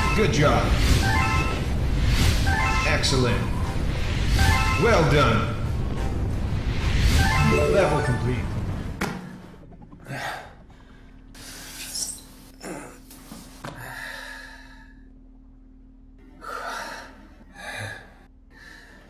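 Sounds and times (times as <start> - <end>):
faint steady hum: 7.3 - 19.0.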